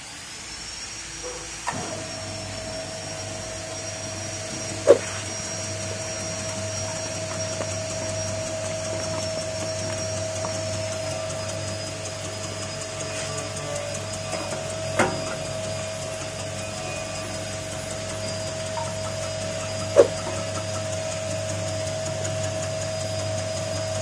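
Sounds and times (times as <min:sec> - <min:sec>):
slicing machine motor whining: 0:00.1 - 0:24.0
low steady hum: 0:01.2 - 0:13.0.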